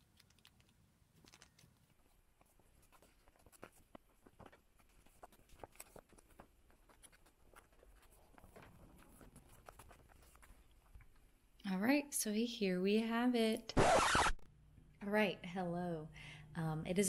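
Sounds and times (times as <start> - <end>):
plastic sleeves clicking and rustling: 0.0 - 11.4.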